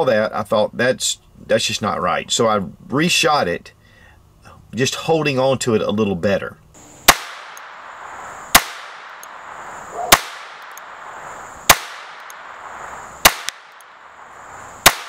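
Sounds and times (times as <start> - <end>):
pistol shots with echo: 7.1 - 15.0.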